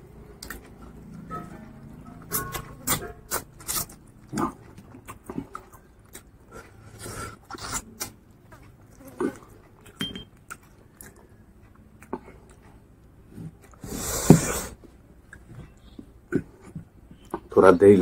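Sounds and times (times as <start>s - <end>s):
wet chewing and mouth smacks: 2.3s - 6.7s, 7.4s - 13.8s.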